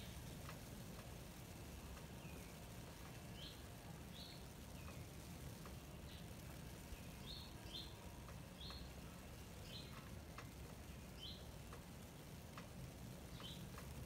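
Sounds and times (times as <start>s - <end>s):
small bird chirping: 3.3s - 8.0s, 8.6s - 11.6s, 13.3s - 13.8s.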